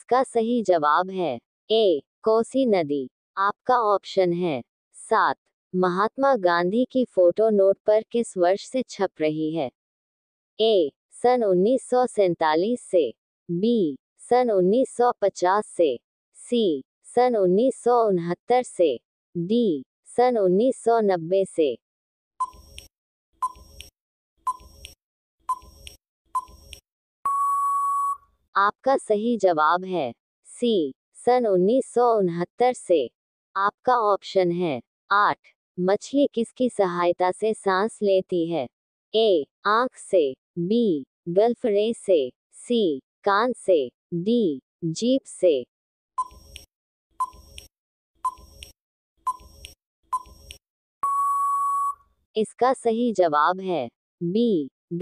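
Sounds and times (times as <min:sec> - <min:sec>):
timer tick-tock: 0:22.4 - 0:23.9, 0:24.5 - 0:26.8, 0:46.2 - 0:51.2
countdown timer beeps: 0:23.4 - 0:23.8, 0:24.5 - 0:24.8, 0:25.5 - 0:25.8, 0:26.4 - 0:26.7, 0:27.3 - 0:28.2, 0:46.2 - 0:46.6, 0:47.2 - 0:47.6, 0:48.2 - 0:48.6, 0:49.3 - 0:50.4, 0:51.0 - 0:52.0
long electronic beep: 0:27.2 - 0:28.2, 0:51.0 - 0:52.0.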